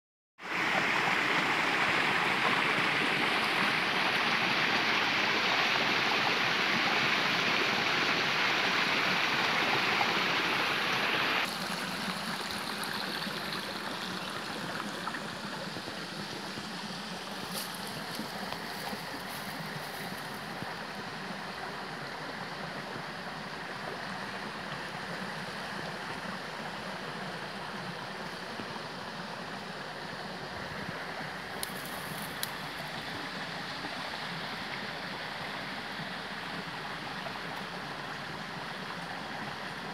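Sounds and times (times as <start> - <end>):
creek water running: 0.4 - 39.9.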